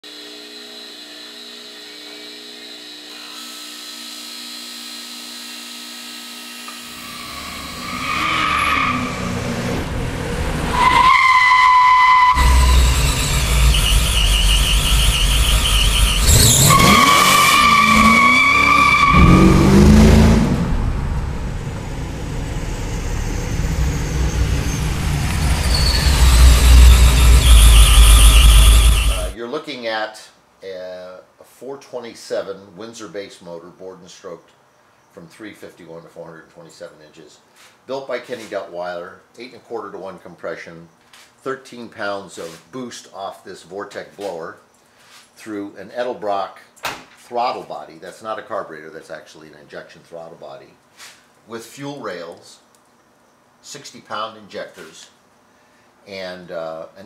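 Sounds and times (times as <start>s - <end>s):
tyre squeals: 7.0s - 9.4s, 10.7s - 19.8s, 23.2s - 29.4s
car engine revving: 7.1s - 29.4s
low engine rumble: 20.3s - 29.4s
bench buffer humming: 23.2s - 29.4s.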